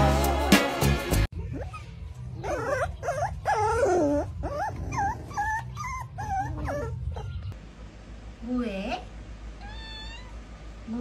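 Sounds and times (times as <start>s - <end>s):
puppies whimpering and yelping: 1.4s - 7.6s.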